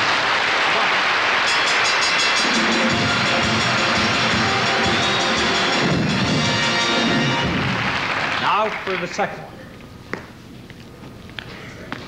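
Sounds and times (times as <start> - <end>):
audience applauding: 0.0 - 9.5
band music: 1.5 - 8.3.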